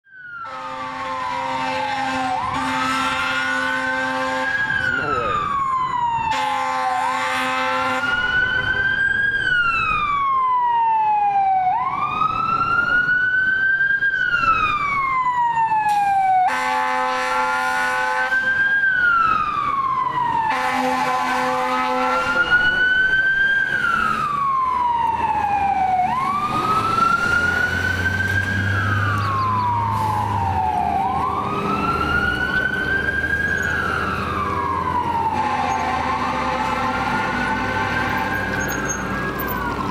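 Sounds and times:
fire engine siren wailing: 0.0s - 39.9s
horn blasts: 0.4s - 4.7s, 6.3s - 8.2s, 16.4s - 18.5s, 20.5s - 22.6s, 35.2s - 38.8s.

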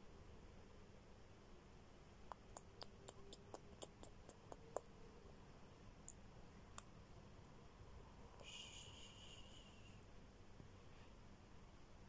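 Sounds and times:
soft clicks of bird beak: 2.3s - 4.9s.

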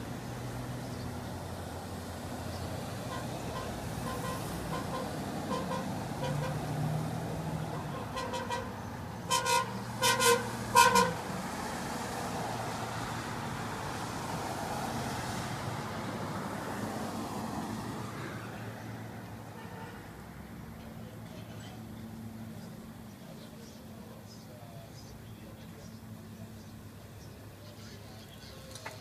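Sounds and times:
street traffic hum: 0.0s - 29.0s
vehicle horn toots: 3.0s - 6.6s, 7.7s - 11.3s, 19.5s - 20.0s.

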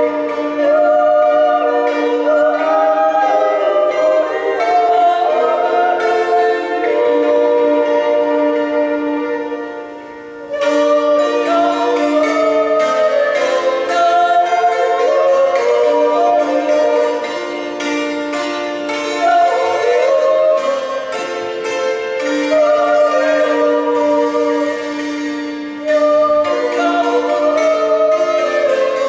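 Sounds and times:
women yodelling: 0.0s - 9.4s, 10.6s - 17.2s, 25.8s - 29.0s
hammered dulcimer runs: 0.0s - 9.9s, 10.5s - 29.0s.

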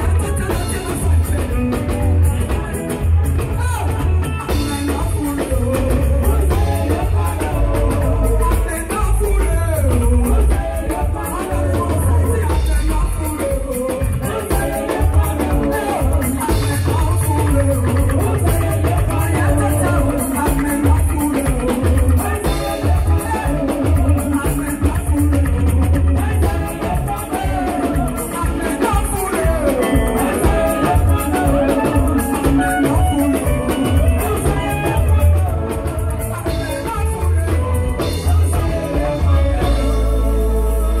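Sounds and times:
drums: 0.0s - 41.0s
woman singing: 4.5s - 41.0s
heavy pulsing bass: 34.4s - 41.0s.

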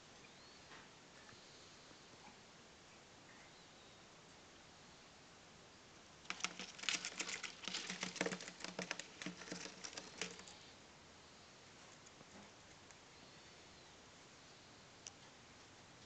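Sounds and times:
birds scrabbling on paper floor: 6.2s - 10.6s.

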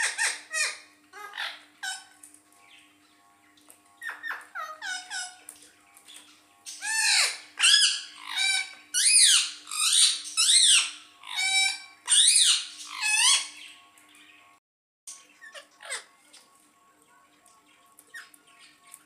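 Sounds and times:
parakeet squawking: 0.0s - 3.3s, 4.0s - 14.3s, 15.1s - 16.5s, 18.1s - 18.9s.

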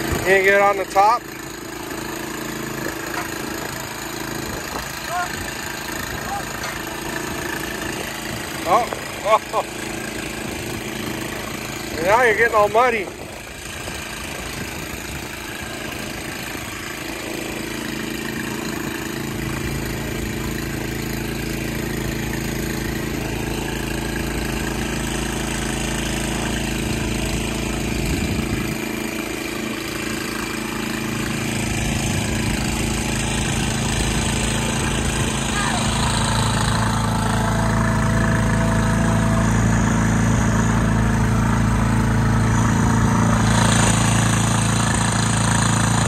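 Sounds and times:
small gasoline engine running: 0.0s - 46.0s.

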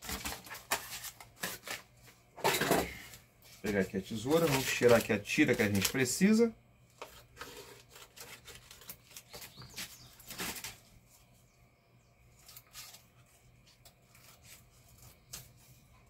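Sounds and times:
paper rustling: 0.0s - 2.2s, 3.5s - 6.2s, 7.0s - 10.9s, 12.4s - 15.8s.

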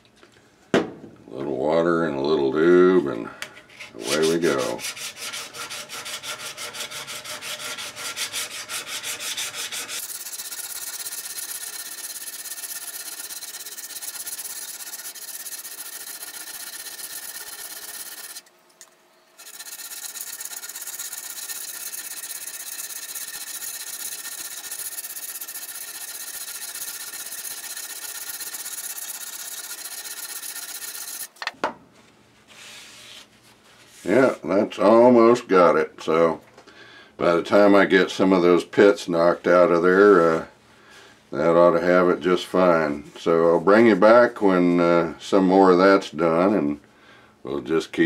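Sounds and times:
abrasive pad scrubbing steel blade: 3.9s - 18.5s, 19.4s - 31.4s.

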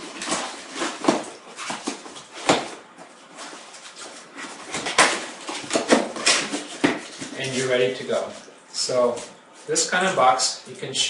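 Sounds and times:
cardboard flaps folding: 0.0s - 7.6s
paper rustling: 0.0s - 9.8s.

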